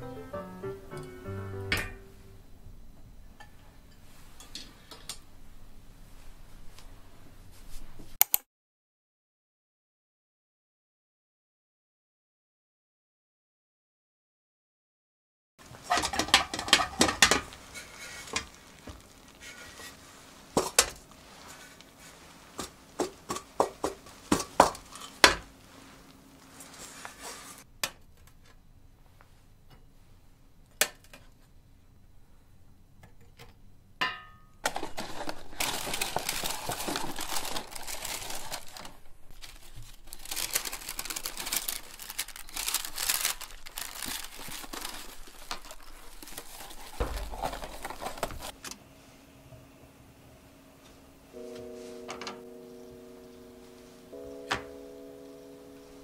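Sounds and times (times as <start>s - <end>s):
paper and box crinkling: 15.8s - 23.2s, 34.6s - 48.6s.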